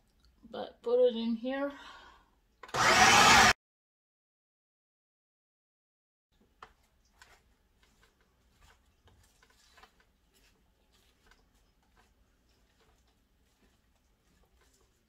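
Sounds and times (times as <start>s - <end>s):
faint clicks and taps: 6.4s - 15.0s.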